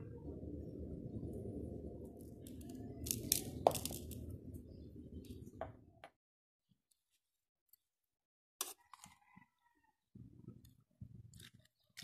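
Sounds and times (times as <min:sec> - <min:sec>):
low steady hum: 0:00.0 - 0:06.1.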